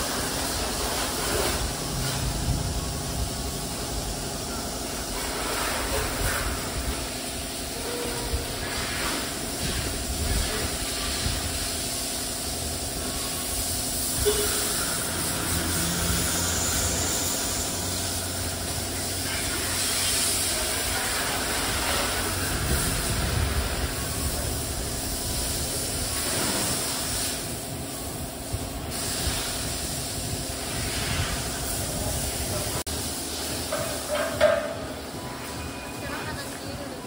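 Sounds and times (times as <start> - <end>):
pressure washer spray hissing: 0.0 - 35.6
pump humming: 12.2 - 28.5.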